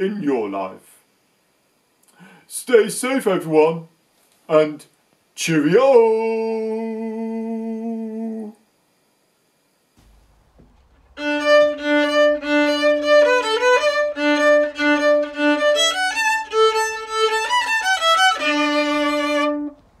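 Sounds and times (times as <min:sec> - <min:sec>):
solo instrumental tune: 0:11.1 - 0:19.9.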